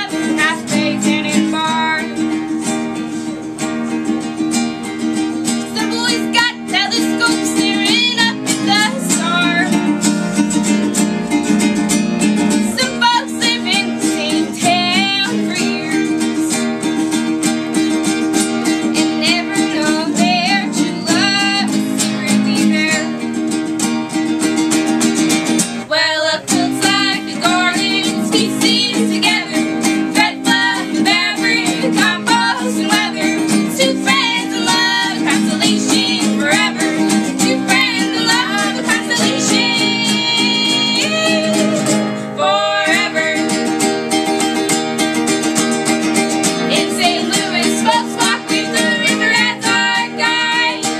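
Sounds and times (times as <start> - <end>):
woman singing: 0.0 - 2.4, 5.6 - 10.0, 12.5 - 16.6, 19.0 - 23.3, 25.9 - 43.9, 46.7 - 50.9
acoustic guitar strumming: 0.0 - 50.9
ukulele strumming: 0.0 - 50.9.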